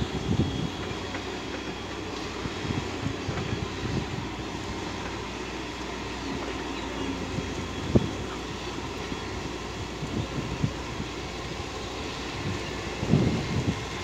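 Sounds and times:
distant diesel engines running: 0.0s - 14.0s.

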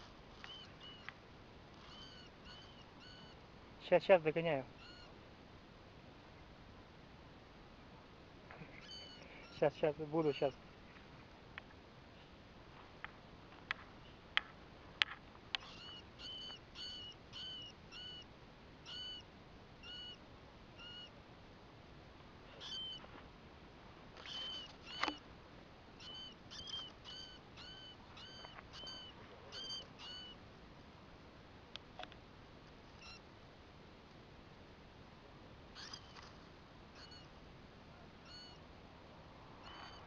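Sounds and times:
baby rat squeaking: 0.3s - 1.1s, 1.7s - 3.4s, 4.8s - 5.1s, 8.8s - 9.7s, 15.6s - 18.2s, 18.8s - 19.2s, 19.8s - 20.2s, 20.8s - 21.1s, 22.6s - 23.0s, 24.2s - 25.2s, 26.0s - 30.4s, 33.0s - 33.2s, 35.8s - 36.4s, 37.0s - 37.3s, 38.2s - 38.6s, 39.6s - 40.0s.

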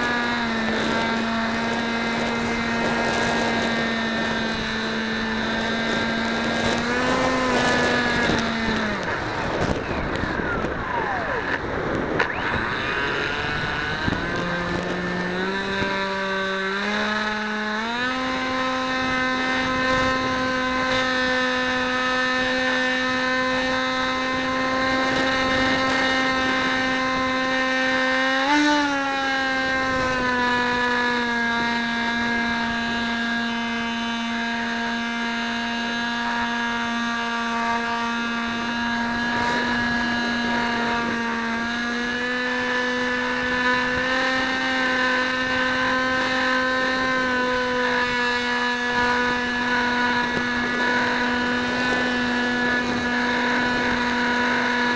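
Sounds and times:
model aircraft motor whining: 0.0s - 54.9s.

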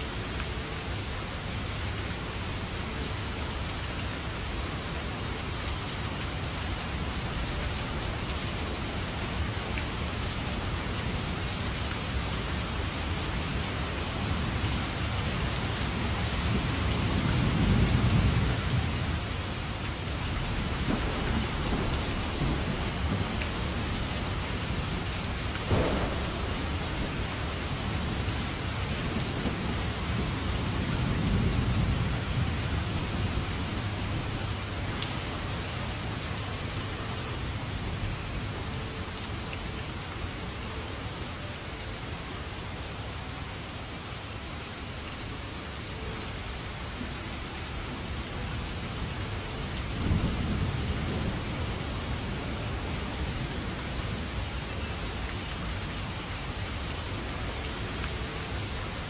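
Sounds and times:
heavy rain: 0.0s - 59.0s
thunder rumbling: 20.3s - 34.6s, 49.9s - 53.5s
sharp thunder crack: 25.7s - 28.2s.

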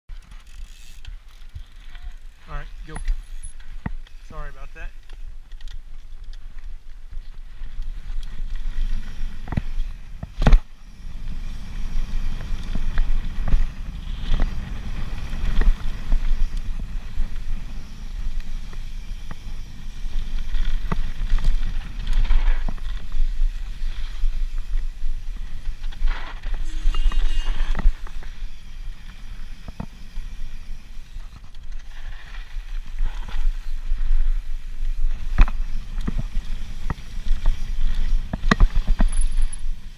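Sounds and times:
bike tyres crunching over dirt: 0.1s - 39.9s
brief squeal: 26.6s - 27.8s
bike knocks and rattles: 35.0s - 39.9s.

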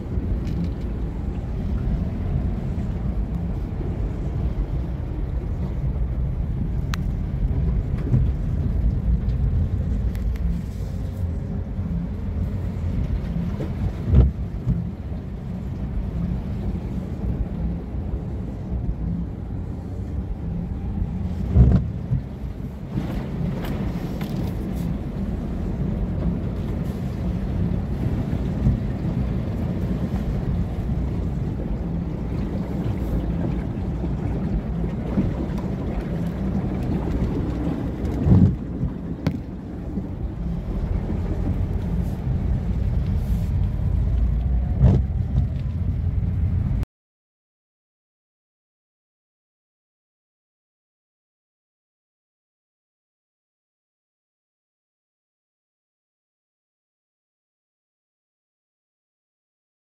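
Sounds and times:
car driving through floodwater: 0.0s - 46.8s.

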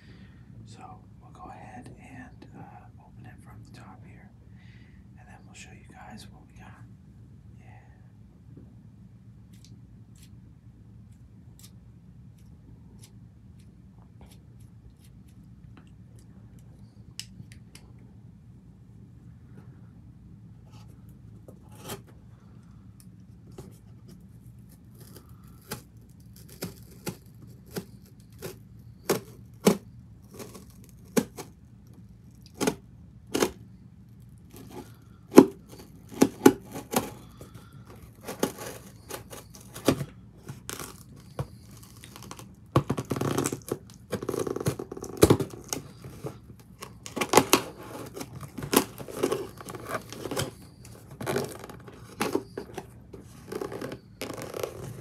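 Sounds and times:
scissors cutting cardboard and tape: 21.7s - 22.1s, 23.5s - 31.6s, 32.4s - 33.6s, 34.5s - 55.0s.

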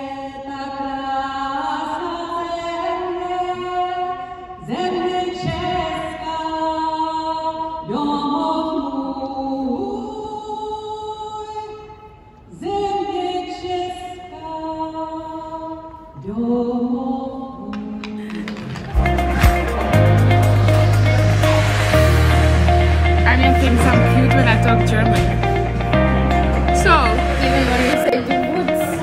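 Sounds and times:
solo singer over loudspeakers: 0.0s - 18.4s.

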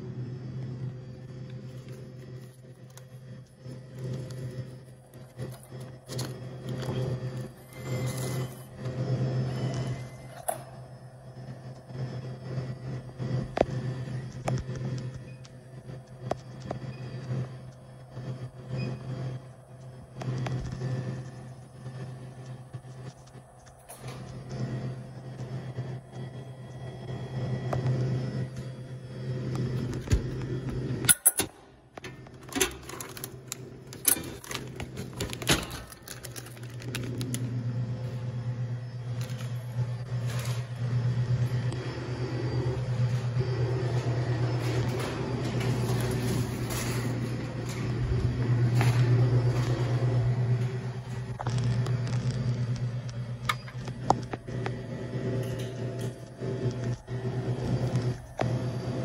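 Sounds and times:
bill acceptor motor whir: 0.0s - 59.0s
steady low hum: 0.0s - 59.0s
bill acceptor click: 31.1s - 37.4s.

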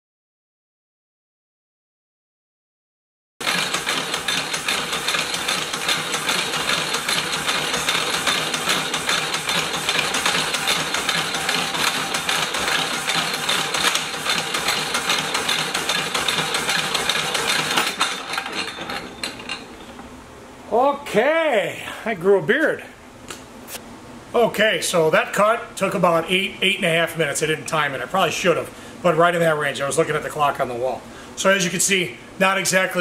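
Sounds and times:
power hacksaw cutting steel: 3.4s - 19.8s.

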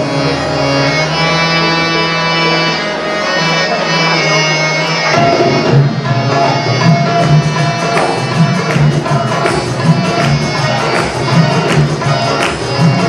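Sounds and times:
hand drums: 5.0s - 13.0s.

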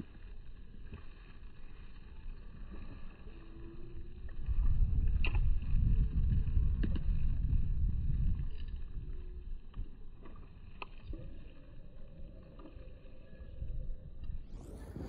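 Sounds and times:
wind buffeting microphone: 3.4s - 15.0s
faint clicks: 8.3s - 15.0s.

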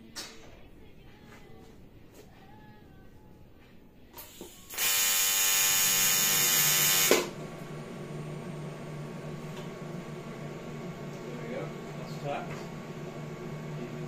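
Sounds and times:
welding arc buzzing: 4.2s - 7.4s
cooling fan humming: 4.4s - 14.0s.

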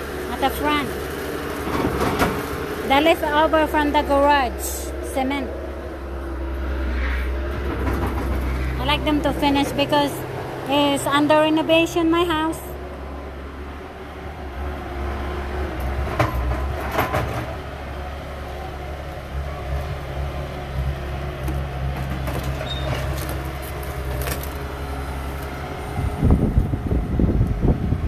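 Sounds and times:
heavy diesel machinery running: 0.0s - 28.0s
wind buffeting microphone: 25.8s - 28.0s.

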